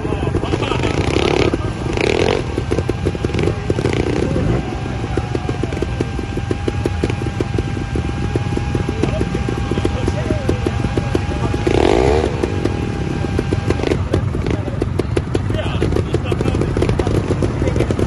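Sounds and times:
motorcycle engine idling: 0.0 - 18.0.

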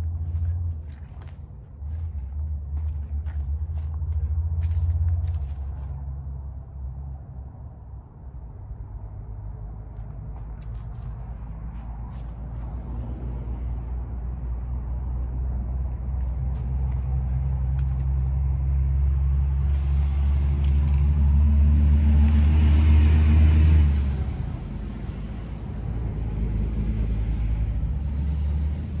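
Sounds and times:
engine rumble: 0.0 - 29.0
high whine falling in pitch: 24.1 - 29.0.

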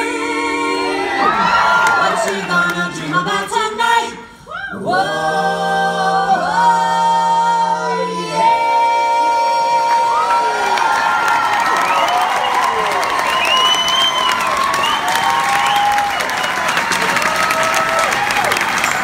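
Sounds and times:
a cappella vocal harmony: 0.0 - 11.3.

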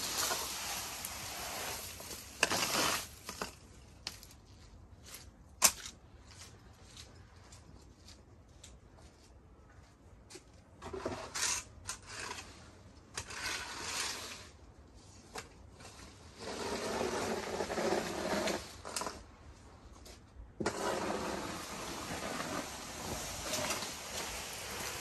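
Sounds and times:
garden tool scraping dirt: 0.0 - 4.3, 10.8 - 14.6, 15.8 - 19.3, 20.1 - 25.0.

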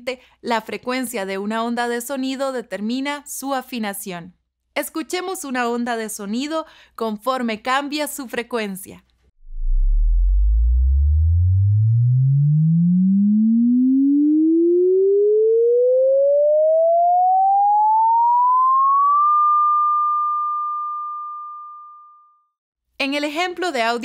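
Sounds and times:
sine tone sweeping upward: 9.4 - 22.5.

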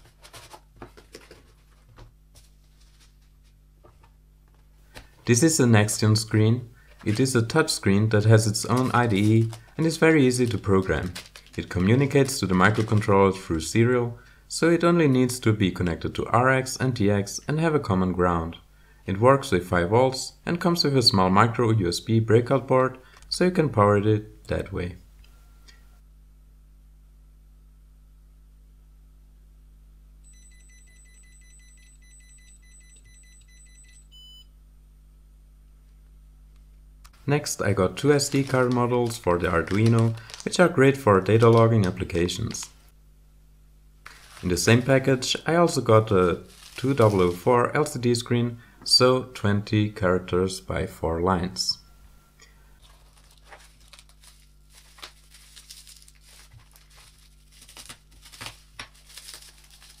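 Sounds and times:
plastic film crinkling: 0.0 - 3.6, 6.9 - 13.4, 37.7 - 42.8, 44.0 - 45.0, 46.1 - 48.0, 52.8 - 60.0.

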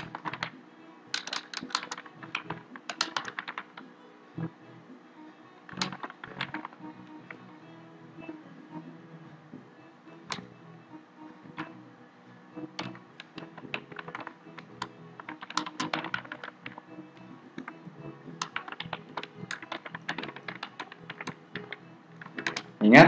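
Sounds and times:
keyboard key clicks: 1.2 - 3.8, 5.7 - 6.9, 12.8 - 16.8, 17.6 - 22.8.

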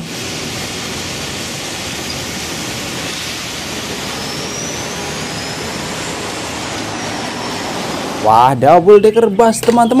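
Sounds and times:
tyres hissing on wet road: 0.0 - 8.3
faint rising whine: 0.0 - 8.8
bus moving off: 0.0 - 9.3.

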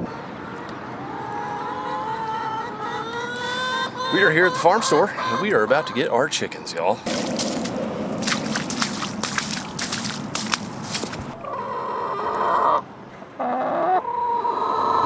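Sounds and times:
drawn-out wavering hen calls: 0.0 - 6.2, 11.3 - 15.0
hens clucking: 0.0 - 15.0
rustling: 7.1 - 11.4.

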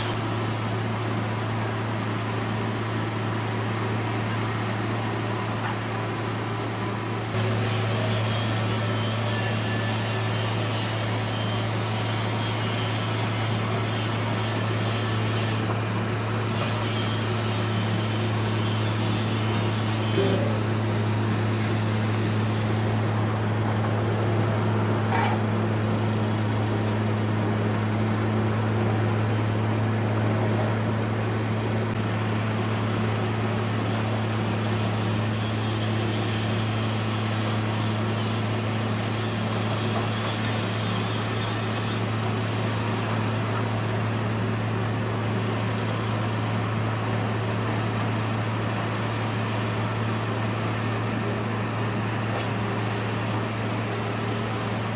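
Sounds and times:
low machine hum: 17.5 - 34.8.

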